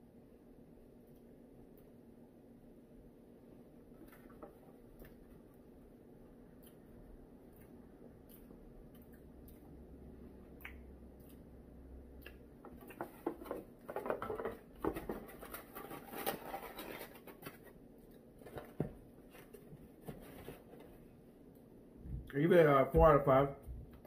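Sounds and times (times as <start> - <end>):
chewing and mouth clicks: 6.5 - 13.0.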